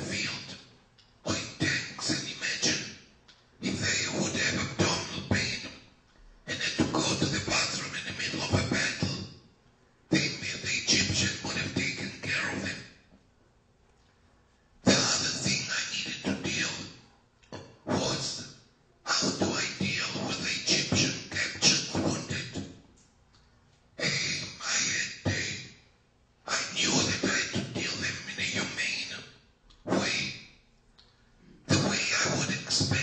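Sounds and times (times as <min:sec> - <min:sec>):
person talking: 0:00.0 - 0:00.6, 0:01.2 - 0:02.9, 0:03.6 - 0:05.7, 0:06.5 - 0:09.2, 0:10.1 - 0:12.8, 0:14.8 - 0:16.9, 0:17.8 - 0:18.5, 0:19.1 - 0:22.7, 0:24.0 - 0:25.7, 0:26.5 - 0:29.2, 0:29.8 - 0:30.4, 0:31.6 - 0:33.0.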